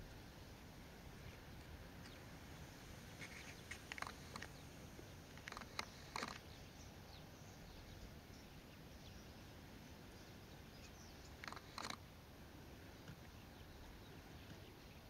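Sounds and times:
short sharp clicks: 11.4 - 12.0.

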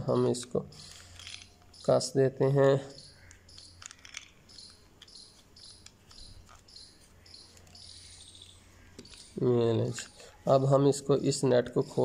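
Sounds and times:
plastic parts clicking: 0.1 - 10.3
cricket chirping: 2.8 - 9.5.

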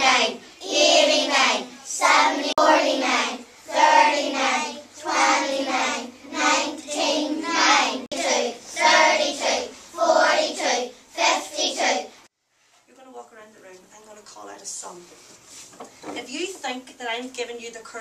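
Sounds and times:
children chanting in unison: 0.0 - 12.3.

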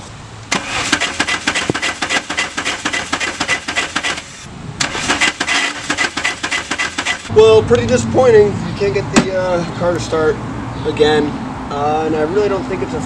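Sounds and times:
starter cranking car engine: 0.5 - 7.3.

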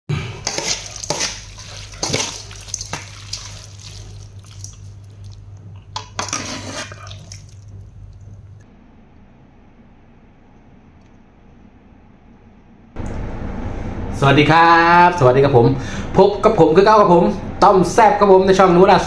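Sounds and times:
utensils and dishes clinking: 0.1 - 8.3
steady low hum: 0.1 - 17.9
liquid splashing and dripping: 0.4 - 8.6.

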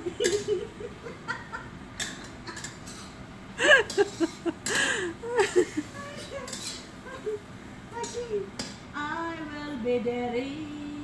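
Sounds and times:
woman laughing: 0.0 - 1.8, 3.6 - 7.4.

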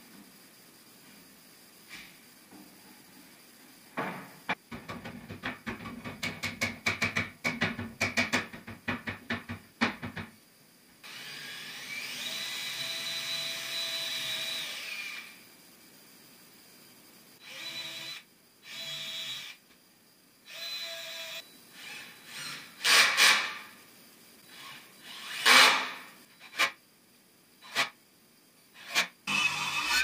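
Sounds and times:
cordless drill whirring: 17.4 - 19.6, 20.5 - 23.3, 24.5 - 25.8, 28.8 - 30.0.

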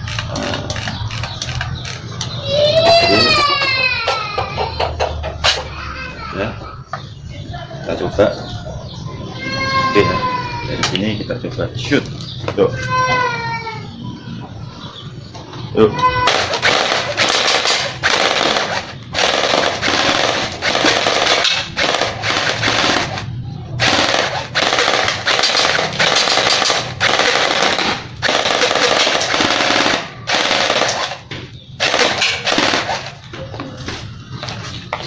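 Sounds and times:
airsoft gun firing full auto bursts: 16.3 - 31.2, 31.8 - 33.2.

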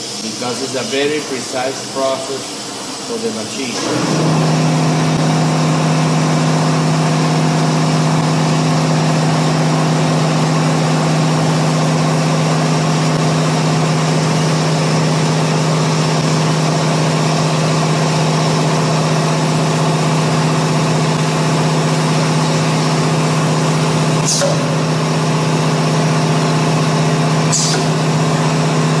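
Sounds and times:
cnc router humming: 0.0 - 29.0
short hisses: 27.5 - 27.9.

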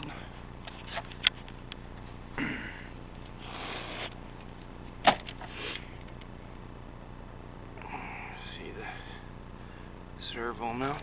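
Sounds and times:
sniffs close to microphone: 3.4 - 4.1.

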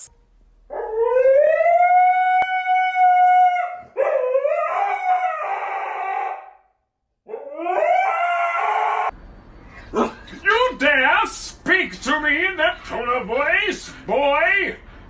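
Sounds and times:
husky howling: 0.7 - 6.7, 7.3 - 9.1.

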